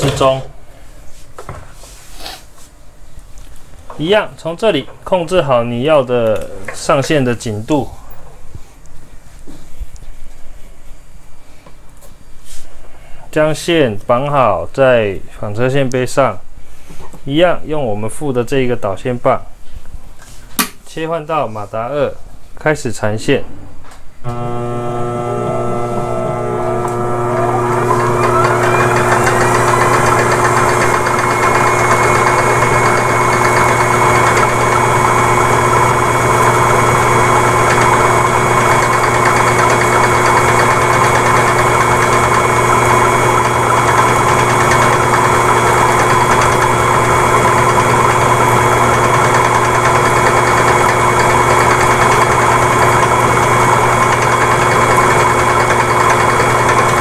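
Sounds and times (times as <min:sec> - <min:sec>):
electric motor whining: 0:24.3 - 0:57.0.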